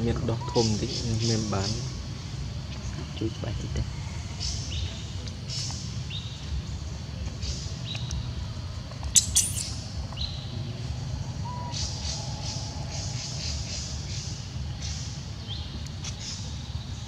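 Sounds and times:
steady low rumble: 0:01.0 - 0:17.0
monkeys squealing: 0:09.2 - 0:09.8.

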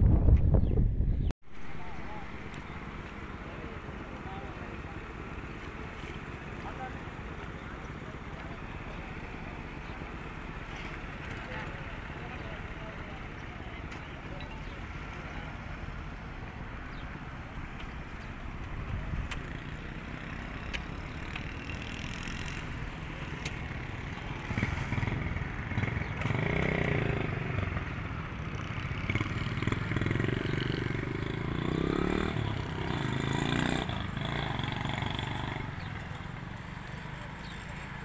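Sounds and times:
wind on microphone: 0:00.0 - 0:01.3.

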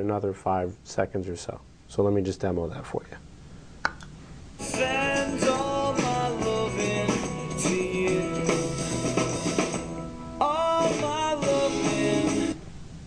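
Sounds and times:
song from small speaker: 0:04.6 - 0:12.6.

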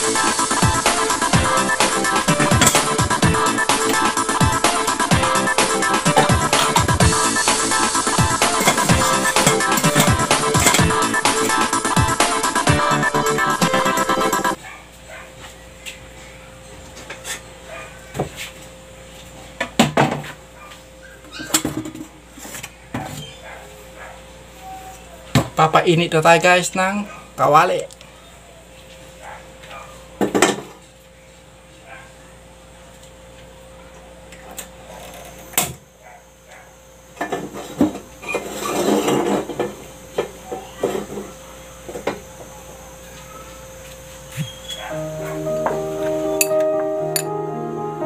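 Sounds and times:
cookware clattering: 0:08.5 - 0:11.0.

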